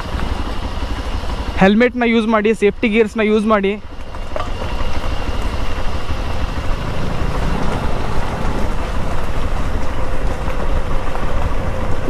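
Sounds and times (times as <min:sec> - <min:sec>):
motorcycle engine running: 0:00.0 - 0:12.0
wind buffeting on microphone: 0:04.0 - 0:12.0.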